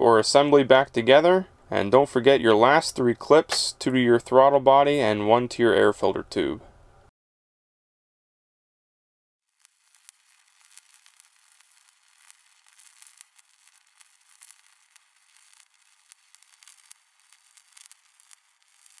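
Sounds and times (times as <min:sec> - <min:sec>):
crackling hiss with clicks and pops: 0:00.0 - 0:05.1, 0:09.4 - 0:19.0.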